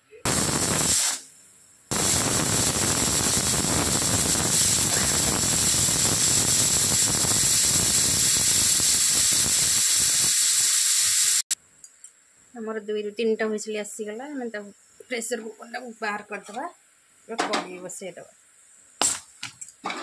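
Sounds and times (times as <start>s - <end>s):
pressure cooker whistling: 1.9s - 11.5s.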